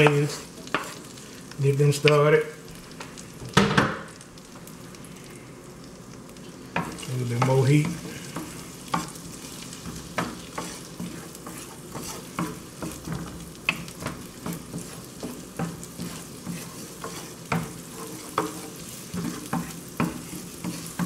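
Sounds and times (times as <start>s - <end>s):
wooden spoon scraping a pan: 0.0s - 2.0s, 6.4s - 21.0s
onions sizzling in a frying pan: 0.0s - 21.0s.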